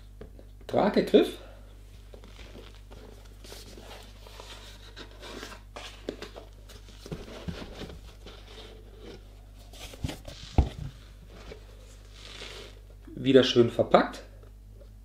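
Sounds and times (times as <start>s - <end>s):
cardboard rubbing and scraping: 3.4s - 12.8s.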